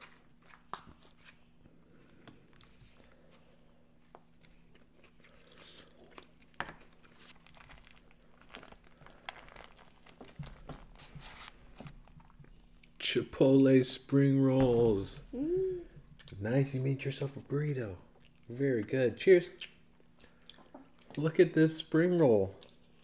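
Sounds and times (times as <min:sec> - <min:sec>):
soft chewing: 0:00.0 - 0:13.0, 0:18.0 - 0:18.6, 0:19.5 - 0:21.2, 0:22.2 - 0:23.0.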